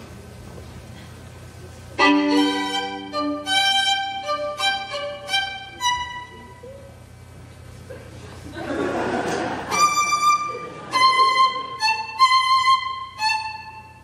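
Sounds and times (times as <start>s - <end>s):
solo violin bowed: 2.0s - 6.7s, 9.7s - 14.0s.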